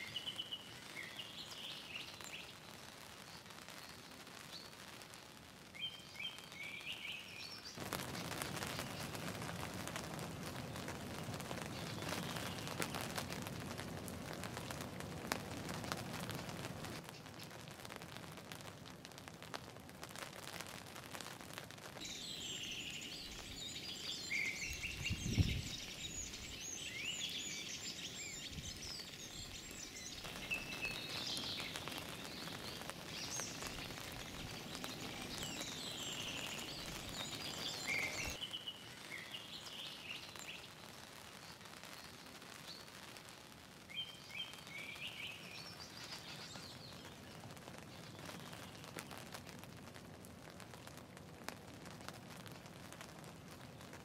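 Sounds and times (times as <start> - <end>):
small birds chirping and singing: 0.0 - 4.8, 5.8 - 9.2, 11.6 - 13.0, 22.0 - 43.0, 43.9 - 49.2
rain hissing: 0.0 - 54.0.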